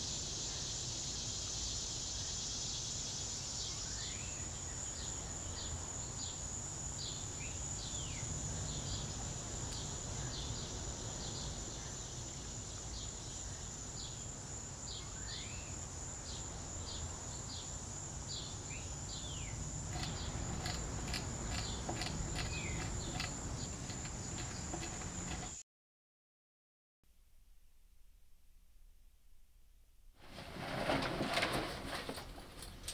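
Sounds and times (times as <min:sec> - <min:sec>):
birds chirping: 0:18.4 - 0:25.6
low background rumble: 0:19.8 - 0:25.5.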